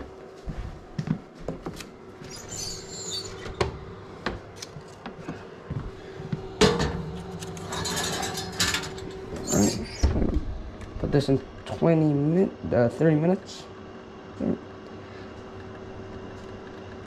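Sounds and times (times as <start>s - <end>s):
faint hum: 0.0s - 17.0s
baking tray scraping on oven rack: 6.6s - 10.2s.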